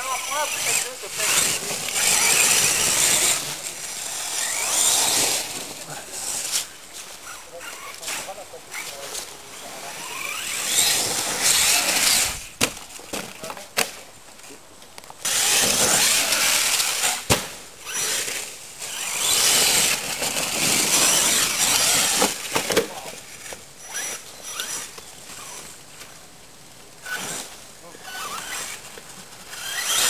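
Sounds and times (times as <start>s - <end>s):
electric motor whining: 0.0s - 8.9s, 9.5s - 12.6s, 15.2s - 22.6s, 27.0s - 30.0s
tyres scrabbling on dirt: 0.0s - 30.0s
toy truck hitting ground: 0.6s - 6.7s, 10.3s - 14.0s, 15.2s - 25.5s, 29.5s - 30.0s.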